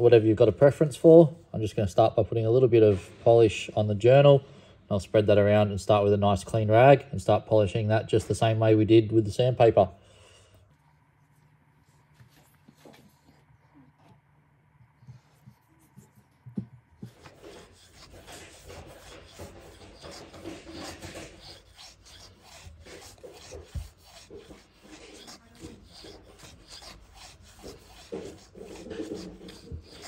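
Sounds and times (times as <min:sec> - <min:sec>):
rag scrubbing metal: 0:17.0 - 0:30.0.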